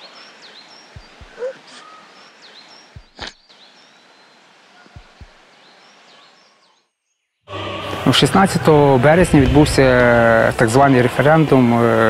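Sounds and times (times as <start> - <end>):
bird chirping: 0.0 - 7.4
outdoor background hiss: 0.0 - 12.0.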